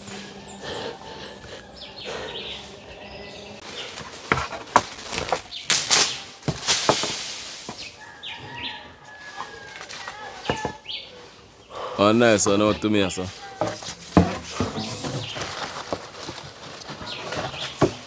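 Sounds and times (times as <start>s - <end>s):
leaves rustling: 2.6s - 11.6s, 12.5s - 18.0s
branches snapping: 3.6s - 8.1s, 9.3s - 10.6s.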